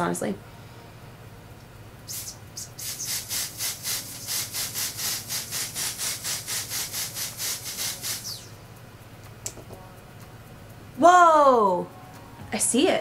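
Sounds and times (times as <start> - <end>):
aerosol spray hisses: 2.1 - 8.5.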